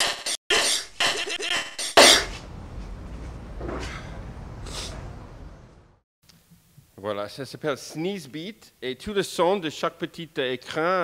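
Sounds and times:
beat of chopped sneezes: 0.5s - 2.4s.

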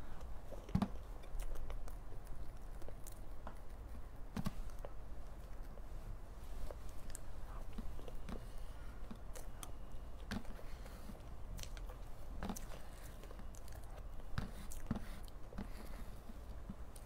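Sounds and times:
chewing and wet mouth sounds: 0.2s - 4.0s, 6.6s - 15.8s.

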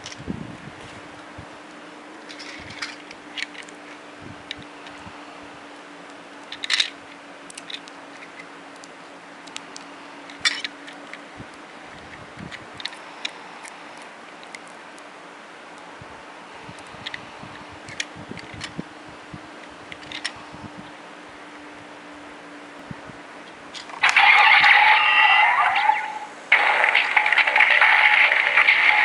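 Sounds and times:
plastic toy cars clattering: 2.2s - 3.8s, 6.4s - 8.5s, 10.3s - 11.2s, 19.9s - 20.4s, 26.8s - 29.0s.

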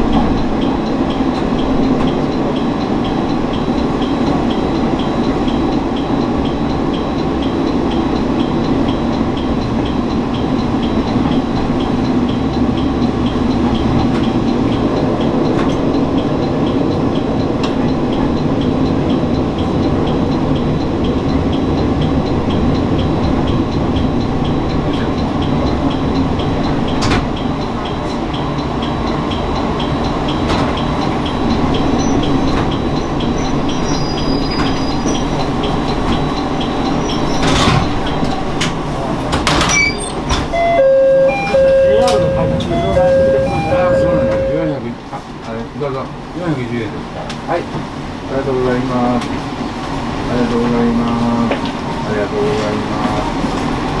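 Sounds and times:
diesel railcar rumbling on rails: 0.0s - 54.0s
sharp clicks from track: 23.0s - 40.6s.

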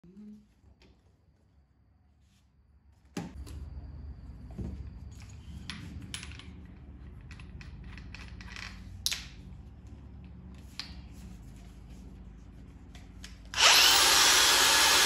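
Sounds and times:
steady low hum: 0.0s - 13.7s
drill bits clicking and clinking: 13.6s - 15.0s.

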